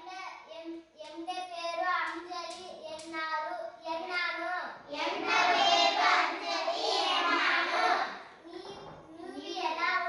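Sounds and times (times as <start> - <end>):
child reading aloud: 0.0 - 4.9, 8.2 - 10.0
children chanting together: 4.9 - 8.4.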